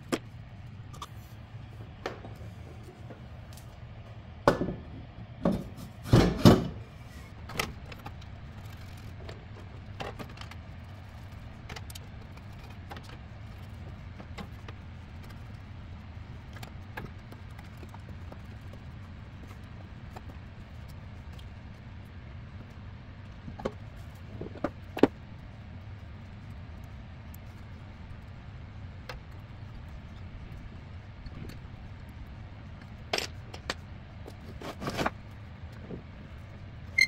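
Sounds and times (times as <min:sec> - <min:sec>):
steady low hum: 0:00.0 - 0:37.0
heavy metal clunks and knocks: 0:04.4 - 0:06.8.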